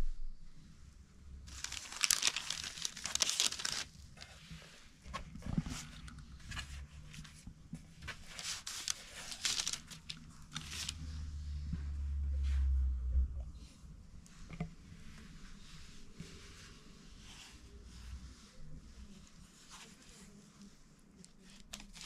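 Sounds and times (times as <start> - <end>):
paper crinkling and rustling: 1.5 - 11.1, 19.1 - 22.0.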